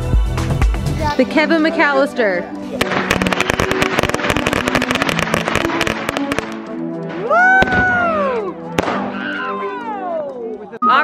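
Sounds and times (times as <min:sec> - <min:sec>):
background music: 0:00.0 - 0:11.0
firework bang: 0:02.8 - 0:06.5, 0:07.5 - 0:08.1
firework crackling pops: 0:02.8 - 0:06.7
whistling firework: 0:07.2 - 0:09.0.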